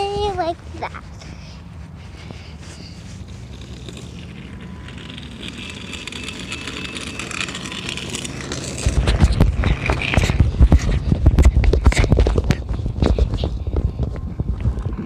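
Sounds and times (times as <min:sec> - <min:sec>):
small wheels rolling on pavement: 0:00.0 - 0:15.0
microphone handling noise: 0:08.8 - 0:15.0
wind rumble on microphone: 0:08.8 - 0:15.0.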